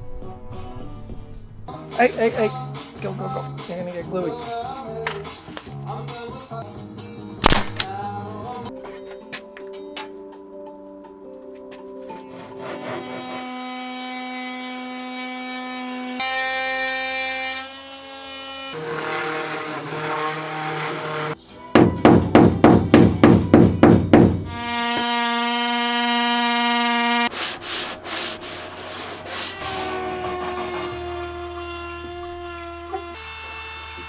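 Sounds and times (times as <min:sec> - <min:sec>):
router whining: 0:29.2 - 0:34.0
oscillating multi-tool buzzing: 0:29.5 - 0:34.0.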